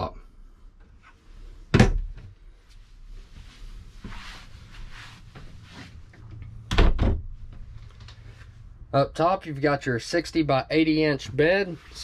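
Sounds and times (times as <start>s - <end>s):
soft shuffling and rustling: 2.4s - 6.5s, 7.4s - 8.8s, 11.3s - 12.0s.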